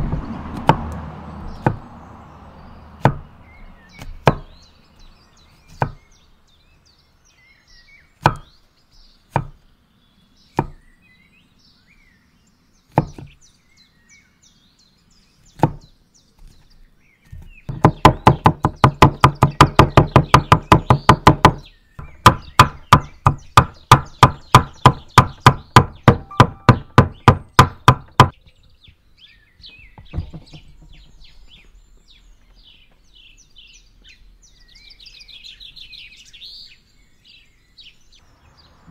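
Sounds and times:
cleaver chopping on wooden board: 0:00.0 - 0:01.9, 0:03.0 - 0:03.3, 0:03.9 - 0:04.6, 0:05.6 - 0:06.0, 0:08.2 - 0:08.5, 0:09.3 - 0:09.6, 0:10.5 - 0:10.8, 0:12.9 - 0:13.4, 0:15.6 - 0:16.6, 0:17.2 - 0:28.4.

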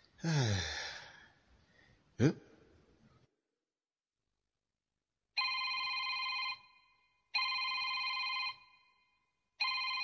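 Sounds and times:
telephone ringing: 0:05.4 - 0:10.0.

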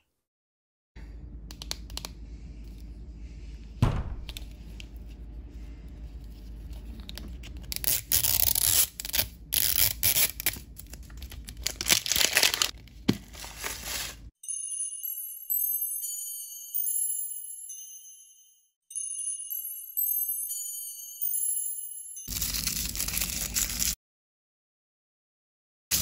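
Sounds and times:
single knock: 0:03.8 - 0:04.4
plastic wrapper crinkling and tearing: 0:06.9 - 0:14.3, 0:22.3 - 0:24.0.

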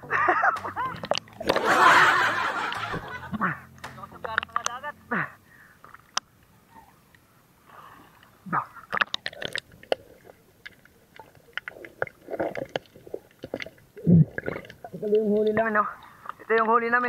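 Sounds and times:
sharp clicks and knocks: 0:00.5 - 0:01.6, 0:02.7 - 0:04.8.

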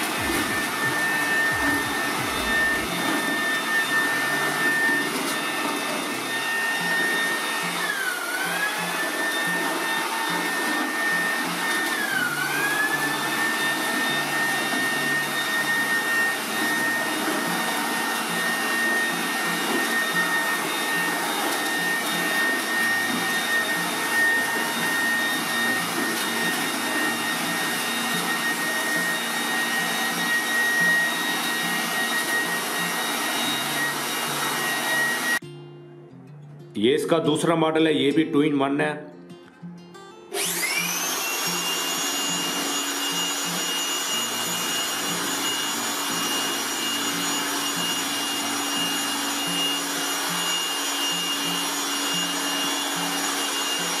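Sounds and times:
electric blower whining: 0:00.0 - 0:35.4, 0:40.3 - 0:54.0.

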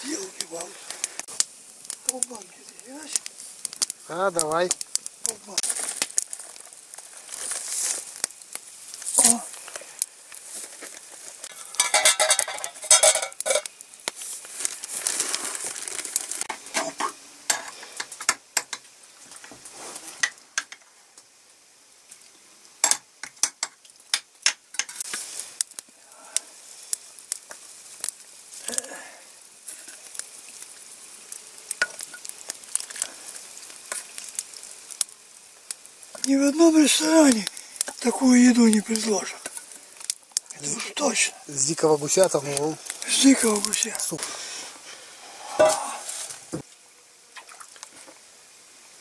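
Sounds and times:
fire sizzling and crackling: 0:00.0 - 0:49.0
metal cookware clinking and scraping: 0:11.6 - 0:13.7.

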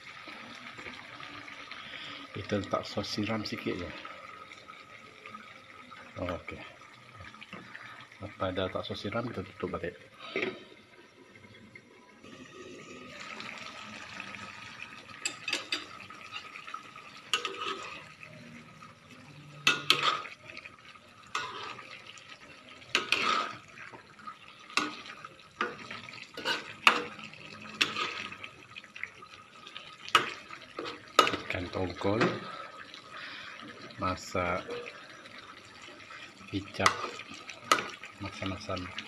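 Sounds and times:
spatula scraping a wok: 0:17.3 - 0:18.1, 0:19.8 - 0:20.4, 0:21.3 - 0:22.0, 0:22.9 - 0:23.7, 0:26.3 - 0:27.1, 0:27.8 - 0:28.4.

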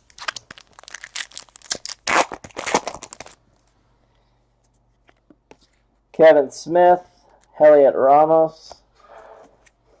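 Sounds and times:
foil wrapper tearing and crinkling: 0:00.0 - 0:03.4.

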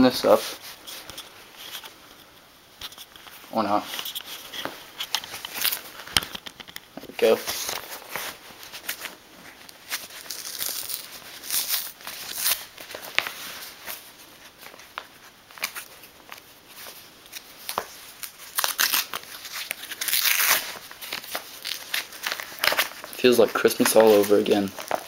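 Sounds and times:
paper mailer tearing and crinkling: 0:09.8 - 0:13.6, 0:17.4 - 0:25.0.

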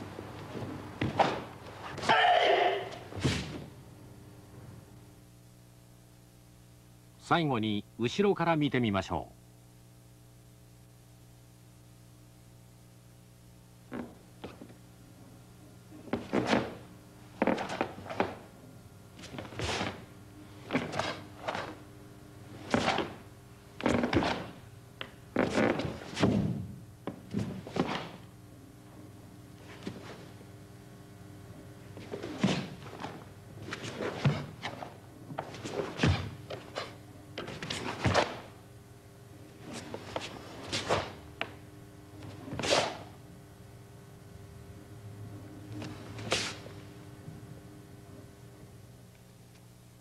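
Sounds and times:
bare feet striking mat: 0:00.4 - 0:02.2, 0:03.1 - 0:03.7, 0:13.9 - 0:14.8, 0:16.0 - 0:18.5, 0:23.8 - 0:24.6
bare feet stamping on a mat: 0:00.5 - 0:01.5, 0:17.4 - 0:18.5.

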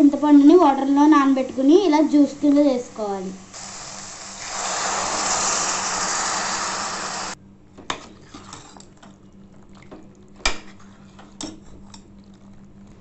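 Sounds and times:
liquid pouring into a hot pan: 0:03.5 - 0:07.4.

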